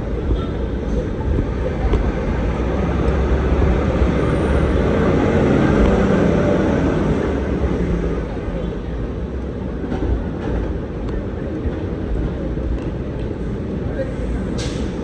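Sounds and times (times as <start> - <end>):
low rumble of traffic: 0.0 - 15.0.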